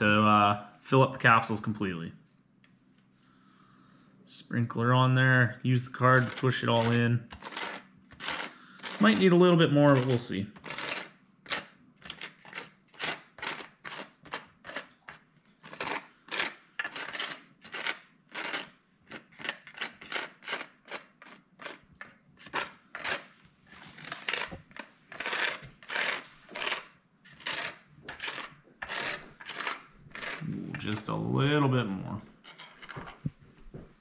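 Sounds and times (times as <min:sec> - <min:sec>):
card scraping plastic tray: 0:23.8 - 0:31.2.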